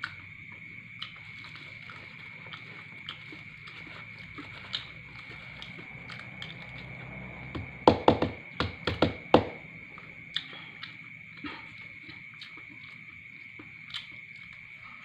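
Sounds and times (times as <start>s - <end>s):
sharp eating clicks and cracks: 0.0s - 7.1s, 10.3s - 14.7s.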